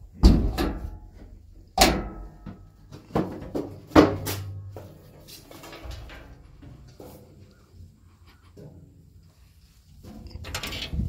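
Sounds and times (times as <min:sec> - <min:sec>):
metal bangs and clanks: 0:00.1 - 0:07.2.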